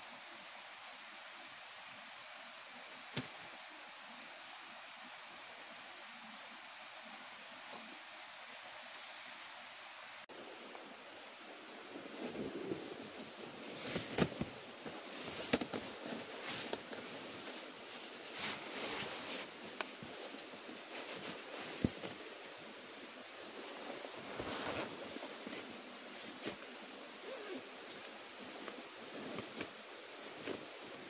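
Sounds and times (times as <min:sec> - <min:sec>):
steady background hiss: 0:00.0 - 0:31.0
nylon fabric rustling: 0:11.9 - 0:22.6, 0:23.4 - 0:31.0.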